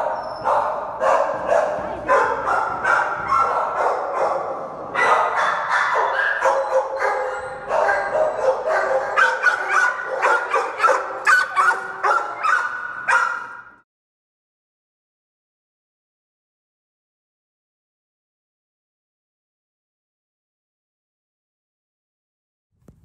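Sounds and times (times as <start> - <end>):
dogs barking: 0.0 - 13.8.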